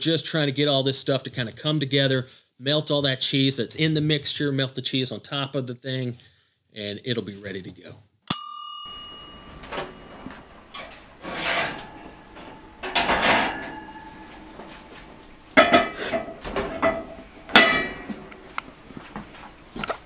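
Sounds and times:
ceramic dish scraping and clinking: 8.9 - 15.0, 15.6 - 18.2
oven door opening: 8.9 - 18.5.

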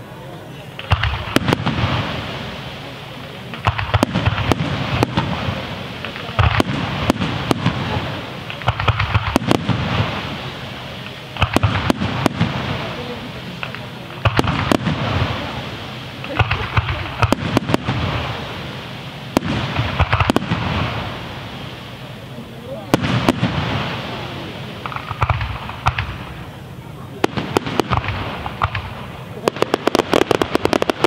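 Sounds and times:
continuous rushing noise: 0.0 - 31.0
firework shells bursting: 0.8 - 22.2, 22.9 - 26.6, 27.2 - 31.0.

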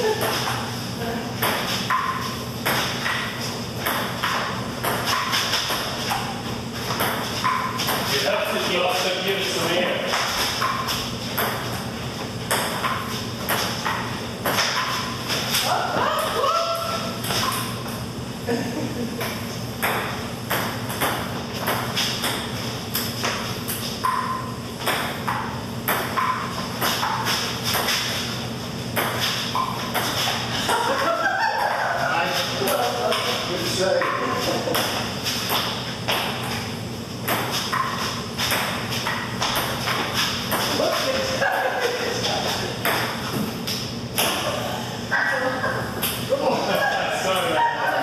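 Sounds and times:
ping-pong ball hitting paddles: 0.0 - 0.7, 1.4 - 9.1, 10.0 - 11.8, 12.4 - 18.0, 19.2 - 28.3, 29.0 - 30.8, 32.4 - 41.7, 42.8 - 44.5
ping-pong ball bouncing on table: 1.4 - 5.9, 6.9 - 8.1, 11.4 - 11.7, 12.5 - 15.0, 19.2 - 23.4, 24.0 - 28.0, 29.0 - 30.2, 34.0 - 36.6, 37.2 - 40.8, 42.8 - 43.2.

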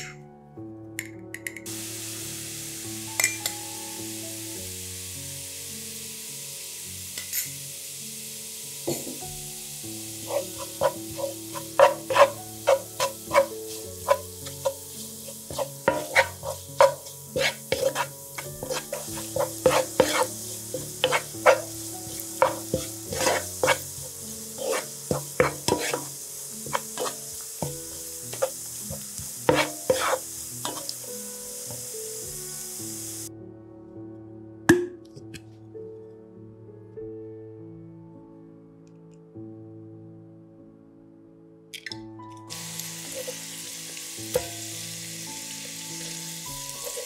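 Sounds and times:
hot oil sizzling in a pan: 1.7 - 33.3, 42.5 - 47.0
utensil scraping a pan: 10.2 - 31.0.

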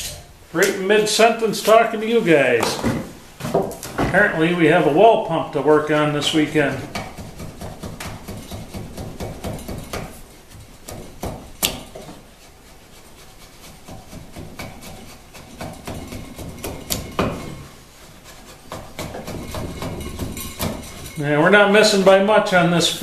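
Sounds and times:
chisel scraping wood: 6.3 - 21.2.

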